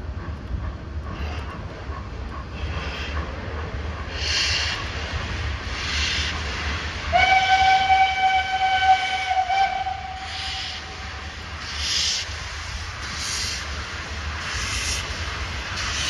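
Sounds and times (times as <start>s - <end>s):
steam exhaust hissing: 2.4s - 16.0s
steam whistle blast: 7.1s - 10.8s.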